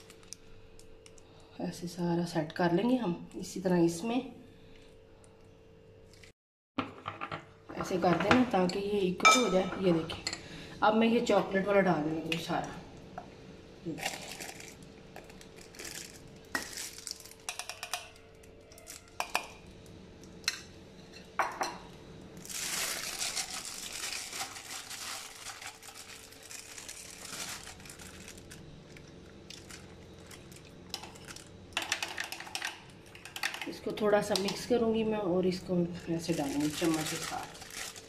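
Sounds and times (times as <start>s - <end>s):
plastic bag rustling: 13.9s - 17.4s, 22.4s - 32.6s, 36.0s - 38.0s.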